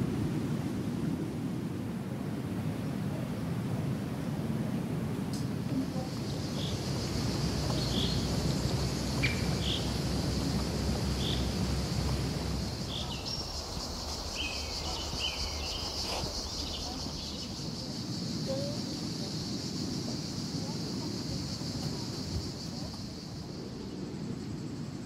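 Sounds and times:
cicadas buzzing: 3.7s - 25.0s
low steady rumble: 4.9s - 15.0s
bird chirps: 9.2s - 10.0s.

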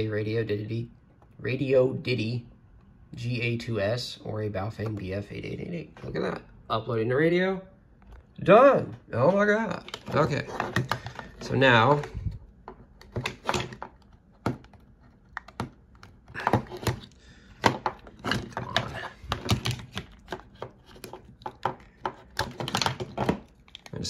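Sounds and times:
plastic radios clicking and knocking: 9.8s - 24.0s.

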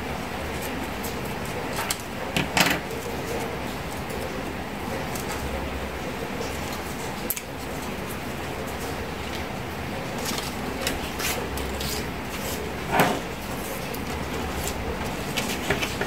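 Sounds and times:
paper clicks and rustles: 13.7s - 16.0s.

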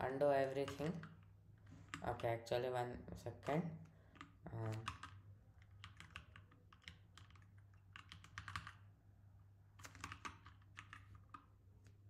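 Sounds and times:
computer keyboard clicking: 4.1s - 8.8s, 9.8s - 11.5s.

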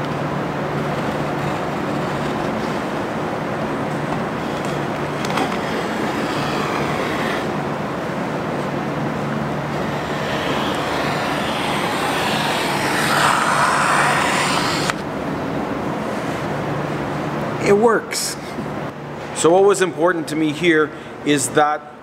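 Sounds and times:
steady rushing noise with hum: 0.0s - 18.0s
cutter slicing vinyl film: 4.6s - 7.6s, 9.8s - 15.0s.

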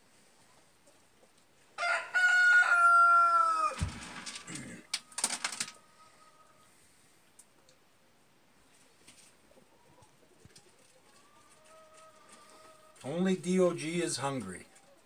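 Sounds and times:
rooster crowing: 1.8s - 4.1s.

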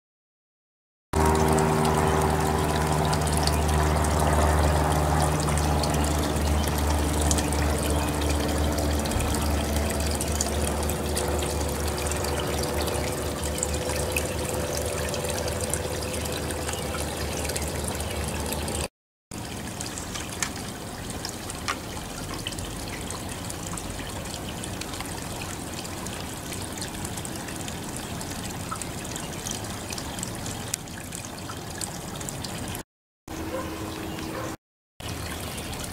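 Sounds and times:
low hum: 1.2s - 18.9s
water trickling: 1.2s - 32.8s, 33.4s - 35.9s.

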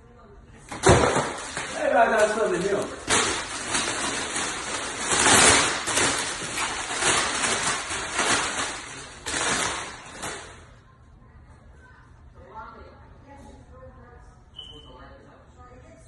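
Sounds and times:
wrapping paper tearing and rustling: 0.8s - 10.7s.

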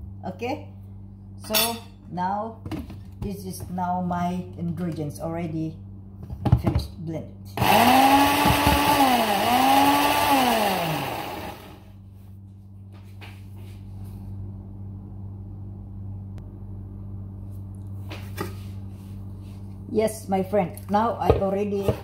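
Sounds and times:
low hum: 0.0s - 22.0s
blender motor whirring: 7.6s - 11.9s.

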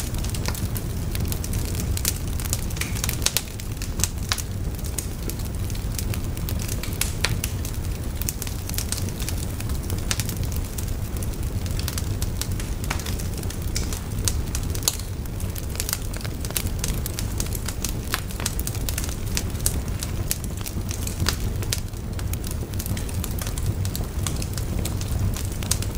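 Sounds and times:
fire crackling and popping: 0.0s - 25.9s
low rumble of burning: 0.0s - 25.9s.

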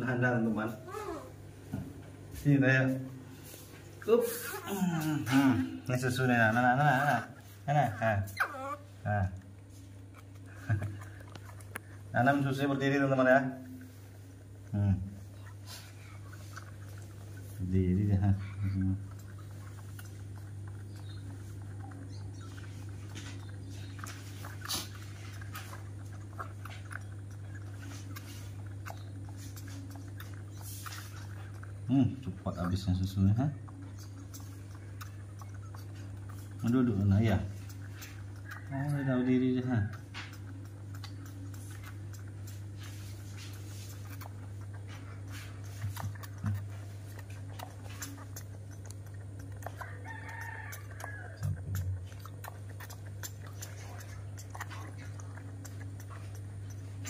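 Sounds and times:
small gulping noises: 0.0s - 57.0s
steady low hum: 0.0s - 57.0s
baby monkey sucking bottle: 0.6s - 1.4s, 3.4s - 57.0s
monkey sucking from bottle: 33.7s - 57.0s.

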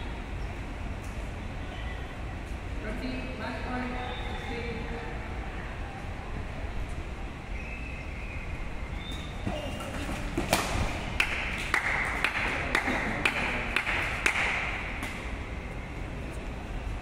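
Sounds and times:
crowd noise: 0.0s - 17.0s
racket hitting shuttlecock: 9.7s - 15.3s
rhythmic hand clapping: 10.5s - 15.2s.

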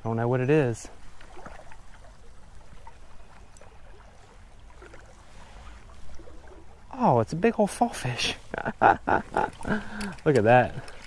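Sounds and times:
creek water running: 0.0s - 11.0s
faint ticks: 2.8s - 3.7s, 9.4s - 11.0s.

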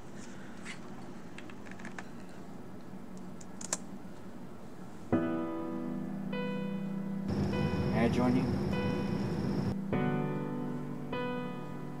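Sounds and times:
faint steady hum: 0.0s - 12.0s
computer keyboard clicks: 3.4s - 3.8s
music with held chord: 5.2s - 12.0s.

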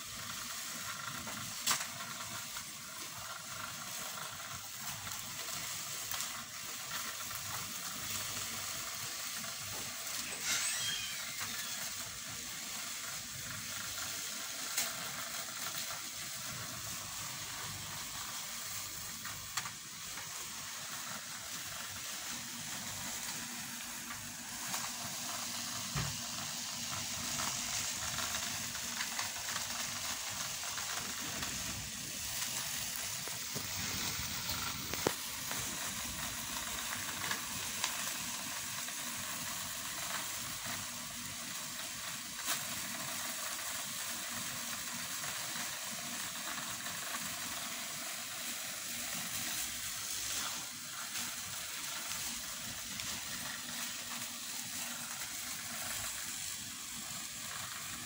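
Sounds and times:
plastic bag crinkling: 27.2s - 37.6s.

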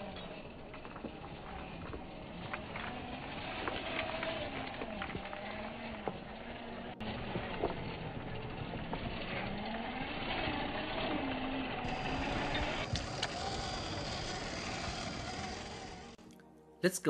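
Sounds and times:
electric motor whining: 0.0s - 16.2s.

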